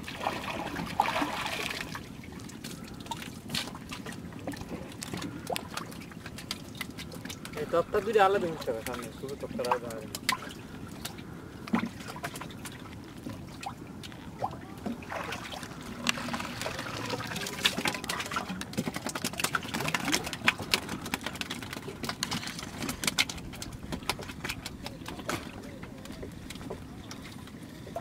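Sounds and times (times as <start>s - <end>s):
water trickling and splashing: 0.0s - 28.0s
water drips: 0.9s - 22.4s.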